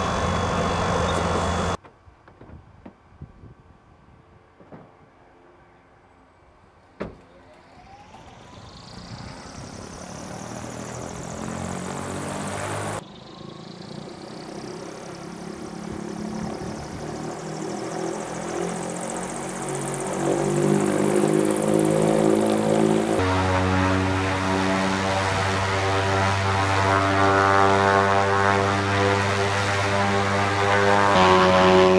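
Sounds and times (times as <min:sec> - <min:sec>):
propeller whoosh: 0:18.3 - 0:31.9
electric motor whine: 0:29.0 - 0:31.9.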